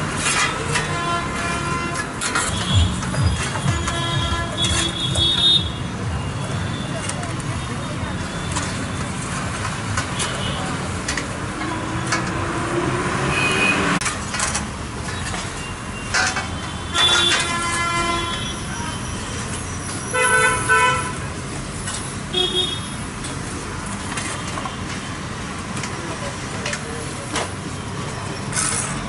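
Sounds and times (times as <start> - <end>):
traffic noise: 0.0 - 29.0
vehicle horns honking: 0.3 - 7.1, 13.2 - 14.0, 16.1 - 19.4, 20.0 - 21.3, 22.3 - 23.0.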